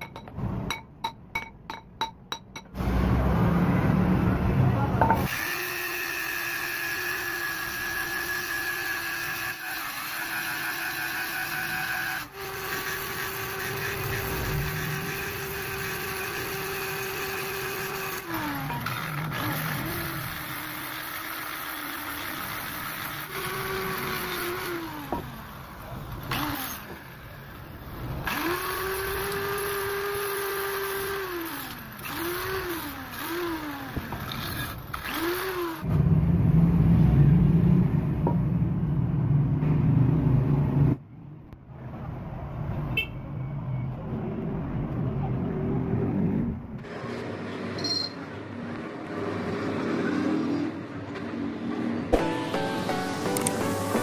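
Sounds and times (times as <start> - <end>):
grinder grinding steel: 5.0 - 35.9
angle grinder whining: 5.1 - 27.6, 28.2 - 35.9.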